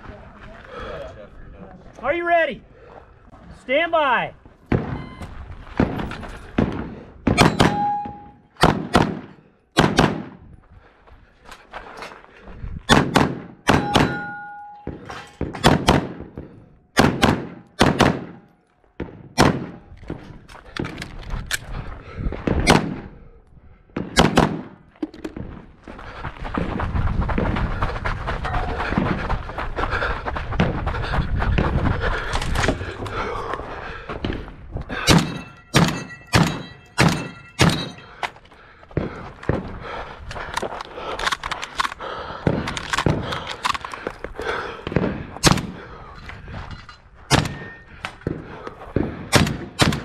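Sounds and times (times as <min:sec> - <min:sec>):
short ringing tone: 0:05.0 - 0:05.4, 0:07.6 - 0:08.4
pistol shots: 0:06.6 - 0:10.4, 0:12.9 - 0:19.9, 0:24.0 - 0:24.8, 0:35.1 - 0:38.0, 0:47.3 - 0:48.4, 0:49.0 - 0:50.0.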